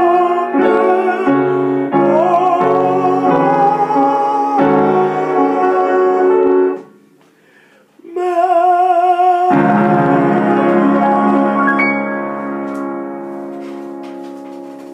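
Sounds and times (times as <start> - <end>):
man singing: 0.0 - 6.9, 8.0 - 12.1
piano chords: 0.0 - 7.2, 9.4 - 14.9.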